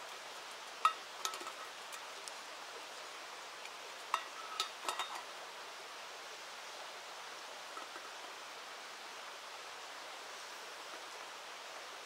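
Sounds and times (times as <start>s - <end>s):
river rushing: 0.0s - 12.0s
utensils clinking on cookware: 4.1s - 5.2s.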